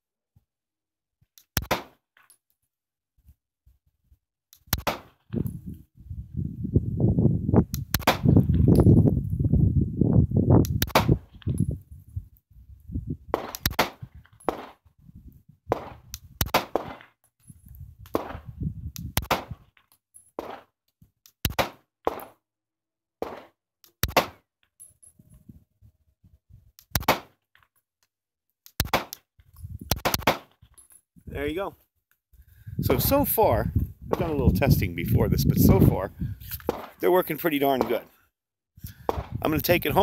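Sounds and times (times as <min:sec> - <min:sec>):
pistol shots: 0:01.6 - 0:02.0, 0:04.8 - 0:05.2, 0:07.9 - 0:08.4, 0:10.8 - 0:11.2, 0:13.3 - 0:14.8, 0:15.7 - 0:17.0, 0:18.1 - 0:18.5, 0:19.2 - 0:19.6, 0:21.5 - 0:22.4, 0:23.2 - 0:24.4, 0:26.9 - 0:27.4, 0:29.9 - 0:30.5, 0:36.7 - 0:37.0, 0:37.7 - 0:38.1
wind rumble on microphone: 0:05.3 - 0:14.3, 0:15.0 - 0:16.4, 0:17.5 - 0:19.7, 0:29.5 - 0:30.0, 0:32.4 - 0:36.8, 0:38.8 - 0:40.0.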